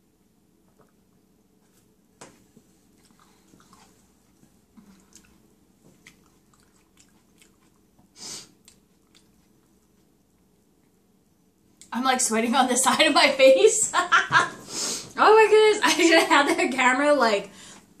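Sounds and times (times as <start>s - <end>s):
chewing and swallowing soup: 2.8s - 11.0s
short breathy burst: 8.2s - 8.6s.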